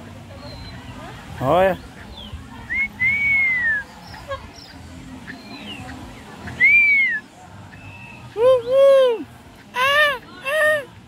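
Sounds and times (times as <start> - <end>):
whistled call: 2.7 - 3.9, 6.6 - 9.2.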